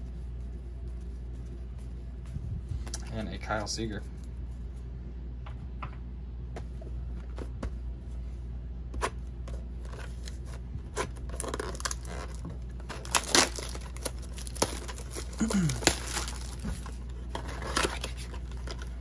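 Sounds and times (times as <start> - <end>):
cards clicking and rustling: 9.0 - 19.0
wrapper crinkling and tearing: 11.0 - 19.0.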